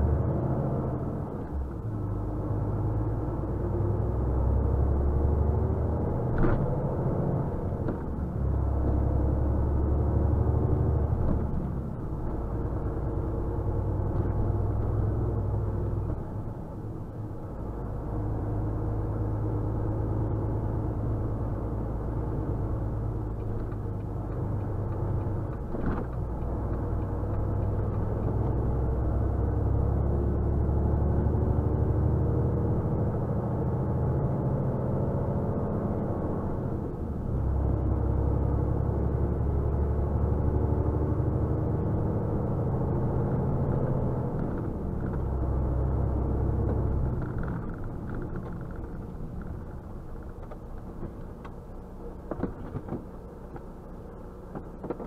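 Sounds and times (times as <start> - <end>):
truck engine rumble: 0.0 - 30.2, 42.4 - 55.0.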